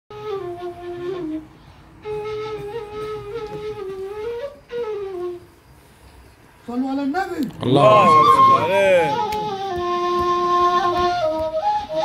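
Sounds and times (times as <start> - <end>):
flute-like solo melody: 0.1 - 5.6, 7.8 - 12.0.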